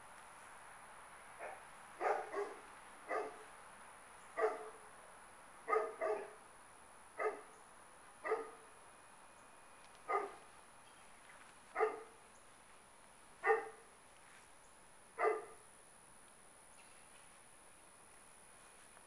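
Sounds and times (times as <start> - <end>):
dog barking: 1.4 - 3.4, 4.4 - 4.8, 5.7 - 6.4, 7.2 - 7.5, 8.2 - 8.6, 10.1 - 10.4, 11.7 - 12.2, 13.4 - 13.8, 15.2 - 15.6.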